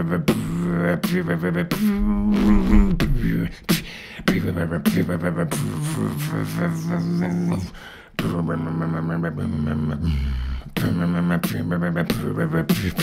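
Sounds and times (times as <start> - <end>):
beatboxing vocal kick and snare: 0.0 - 13.0
hummed low tone: 1.8 - 3.6.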